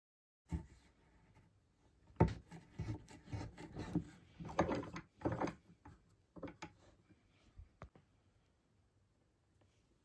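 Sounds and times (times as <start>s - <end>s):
scraping strokes on wooden block: 2.2s - 5.5s.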